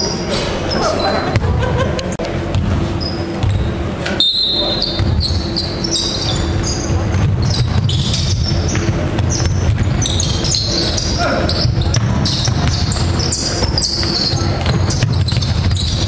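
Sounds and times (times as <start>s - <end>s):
sneaker squeaks: 0.0s - 1.5s, 2.4s - 16.0s
players' voices: 0.0s - 15.9s
basketball bouncing on wood floor: 2.5s - 3.7s, 4.8s - 5.6s, 6.2s - 16.0s.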